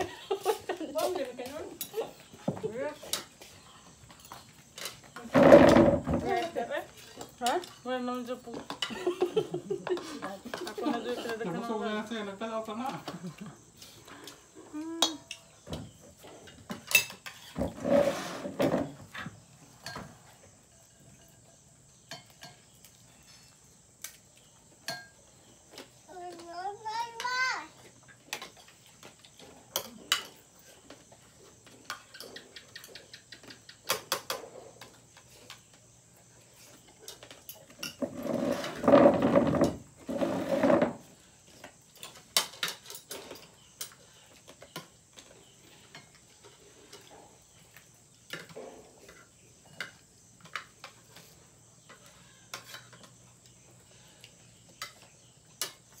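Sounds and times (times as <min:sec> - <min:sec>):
cutlery clinking on plates: 0:08.5 - 0:11.4, 0:16.4 - 0:17.6, 0:19.8 - 0:23.4, 0:24.8 - 0:25.3, 0:28.3 - 0:31.1, 0:42.0 - 0:47.1, 0:51.8 - 0:53.2.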